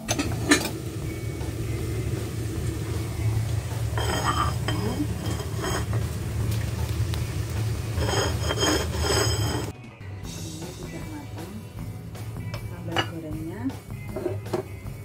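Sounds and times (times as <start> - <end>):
ceramic plates clinking: 0.0 - 0.9, 3.8 - 6.1, 7.9 - 9.7
low hum: 0.0 - 9.7.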